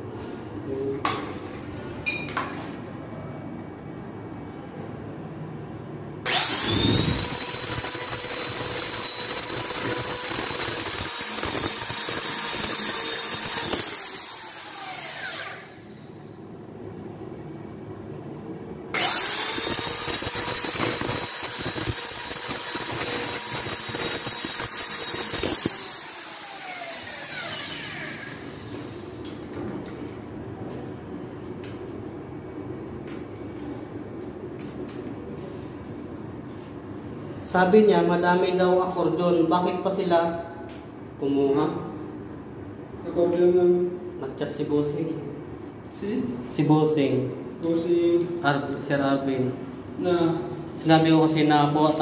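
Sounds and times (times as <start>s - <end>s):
electric drill driving screws: 6.3s - 16.0s, 19.0s - 28.7s.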